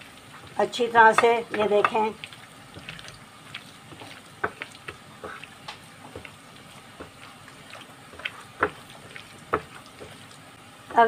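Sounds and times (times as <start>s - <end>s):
hand squelching wet mince: 0.0s - 10.5s.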